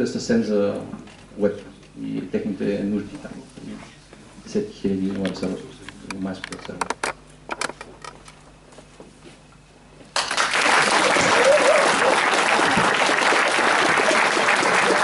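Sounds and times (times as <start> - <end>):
audience applauding: 10.2 - 15.0.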